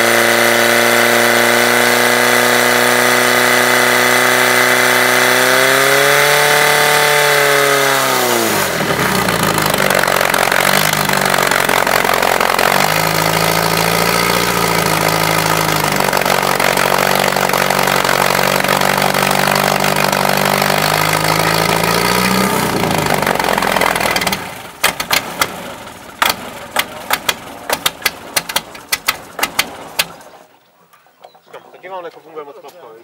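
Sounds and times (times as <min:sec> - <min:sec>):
pump engine running: 0:00.0 - 0:30.4
sharp irregular clicks and knocks: 0:23.2 - 0:25.6, 0:26.2 - 0:31.4.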